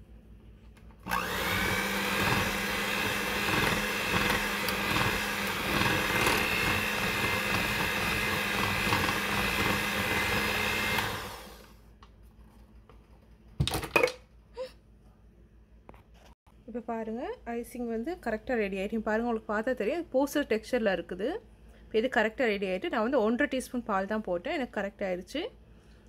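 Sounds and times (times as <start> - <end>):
electric hand mixer whining: 1.0 - 11.8.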